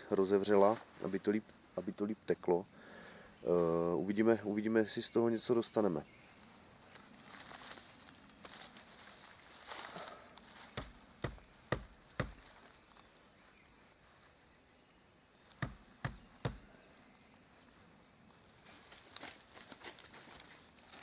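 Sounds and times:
knife knocking on tree trunk: 0:10.7 - 0:12.4, 0:15.6 - 0:16.7.

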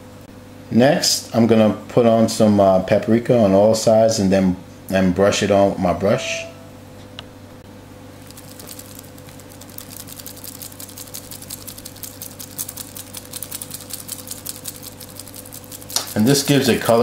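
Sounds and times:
steady low hum: 0:00.0 - 0:17.0
brush scrubbing meat: 0:08.2 - 0:17.0.

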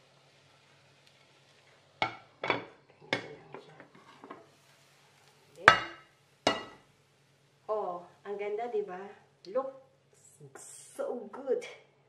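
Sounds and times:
plate and frying pan clattering: 0:02.0 - 0:03.3, 0:05.7 - 0:06.8.

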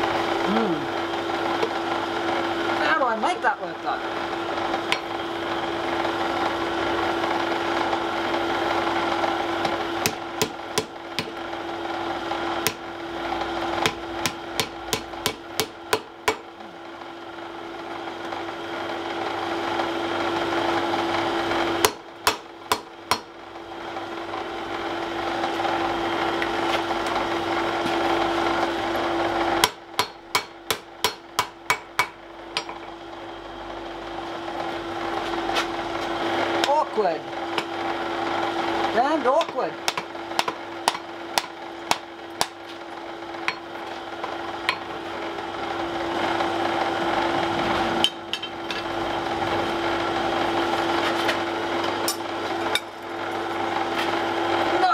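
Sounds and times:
steady motor hum: 0:00.0 - 0:54.9
hammer striking iron on anvil: 0:09.6 - 0:11.4, 0:12.6 - 0:12.8, 0:13.8 - 0:16.5, 0:21.8 - 0:23.3, 0:29.6 - 0:32.9, 0:39.4 - 0:42.6, 0:43.4 - 0:43.7, 0:44.7 - 0:44.9.

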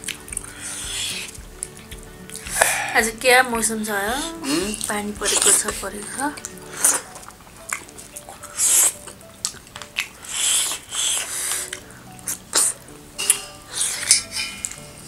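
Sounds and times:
mouths chewing: 0:00.0 - 0:13.0
faint background music: 0:00.0 - 0:15.0
wet eating squishes and slurps: 0:06.4 - 0:12.8.

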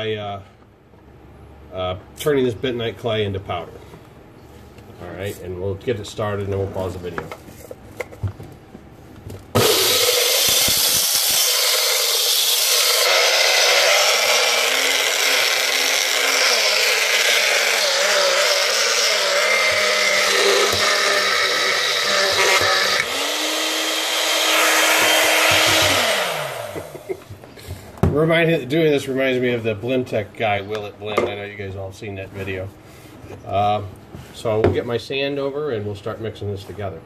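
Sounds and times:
blender motor grinding: 0:09.6 - 0:27.2.

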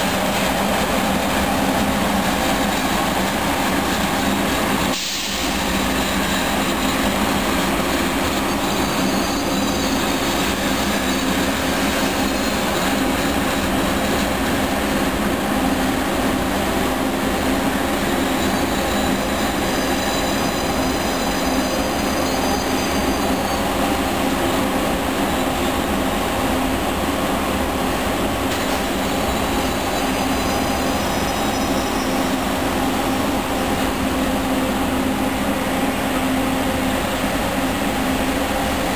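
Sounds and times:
electric train rolling hum: 0:00.0 - 0:38.9
high-pitched wheel squeal: 0:05.3 - 0:14.2, 0:17.9 - 0:24.3, 0:28.8 - 0:33.3.

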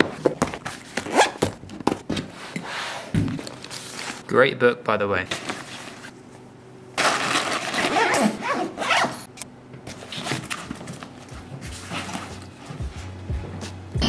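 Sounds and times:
backpack zipper rasping: 0:00.8 - 0:01.5, 0:07.0 - 0:09.3
bag rustling and scraping: 0:07.0 - 0:09.3, 0:09.9 - 0:12.9.

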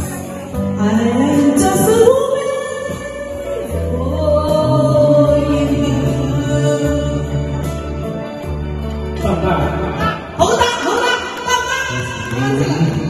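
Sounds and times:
woman singing into a microphone: 0:00.0 - 0:07.7
karaoke backing track: 0:00.0 - 0:13.0.

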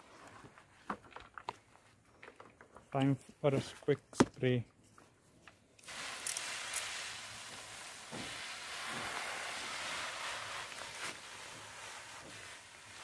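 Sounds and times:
sprayer hissing: 0:05.8 - 0:13.0.

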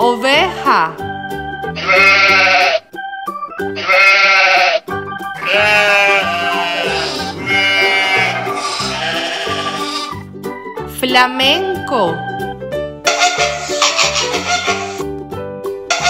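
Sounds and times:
light background music: 0:00.0 - 0:16.0
sheep bleating: 0:01.8 - 0:02.9, 0:03.8 - 0:10.2, 0:13.8 - 0:15.0.

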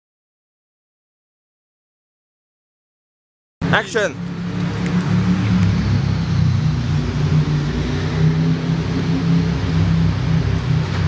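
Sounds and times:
vehicle engine humming: 0:03.6 - 0:11.0.

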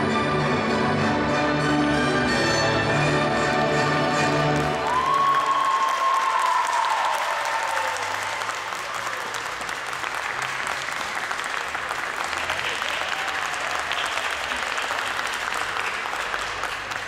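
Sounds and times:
audience applauding: 0:04.2 - 0:17.0.

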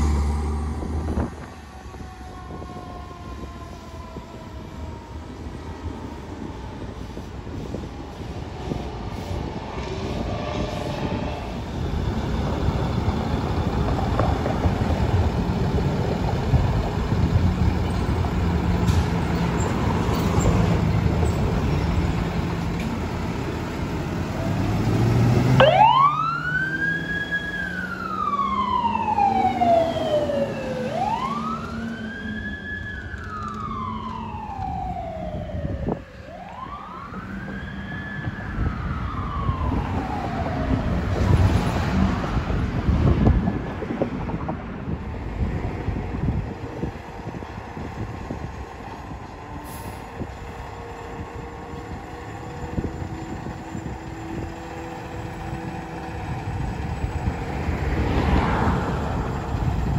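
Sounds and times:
truck engine: 0:00.0 - 0:02.6, 0:07.2 - 0:59.9
ambulance engine pulling away: 0:00.0 - 0:59.9
traffic noise: 0:00.0 - 0:59.9
ambulance siren wailing: 0:00.8 - 0:08.6, 0:25.4 - 0:44.4, 0:46.2 - 0:59.9.

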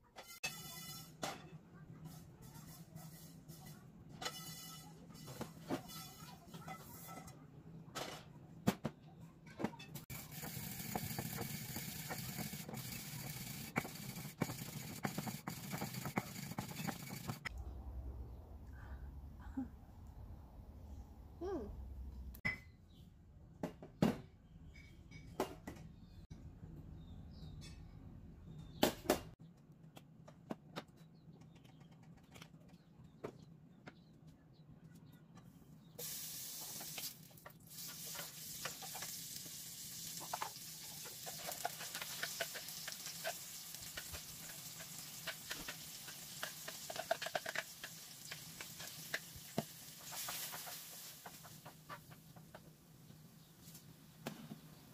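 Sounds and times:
pestle pounding and grinding: 0:10.1 - 0:17.4
spice seeds clattering into mortar: 0:41.2 - 0:51.1.

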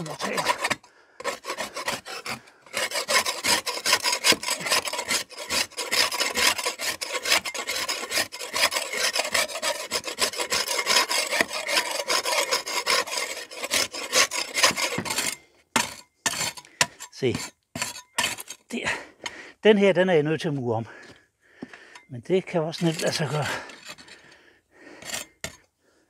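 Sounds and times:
spade scraping render off wall: 0:00.0 - 0:18.7, 0:22.6 - 0:24.2.

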